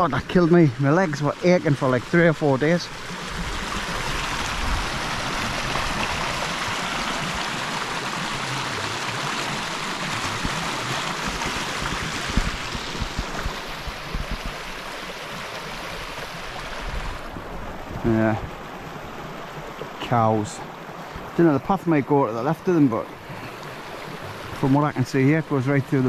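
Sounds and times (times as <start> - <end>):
stream rushing over stones: 0.0 - 26.0.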